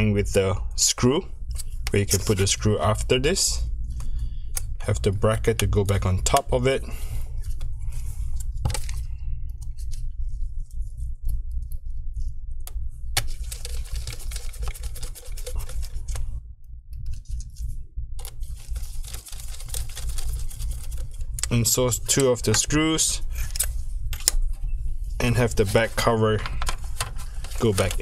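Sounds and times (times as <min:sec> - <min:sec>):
steady low hum: 0:00.0 - 0:28.0
rustling handling noise: 0:01.5 - 0:02.6, 0:13.2 - 0:16.4, 0:17.1 - 0:28.0.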